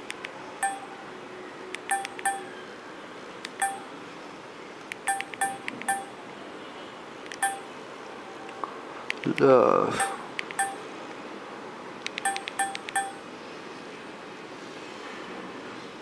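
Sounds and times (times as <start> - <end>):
phone keypad beeps: 0.6 - 0.9, 1.8 - 2.5, 3.5 - 3.9, 5.0 - 6.2, 7.3 - 7.7, 10.0 - 10.8, 12.1 - 13.2.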